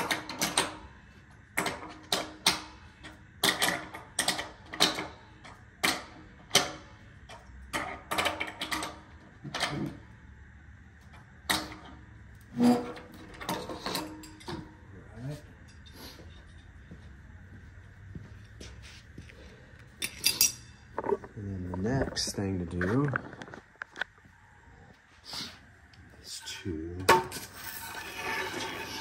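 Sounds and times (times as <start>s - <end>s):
metal tools clicking and clanking: 12.6s - 14.8s, 20.0s - 23.0s.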